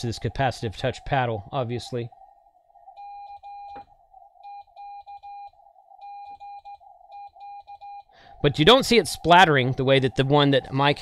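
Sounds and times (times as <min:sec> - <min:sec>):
morse code tone: 0:02.9 - 0:03.8, 0:04.4 - 0:11.0.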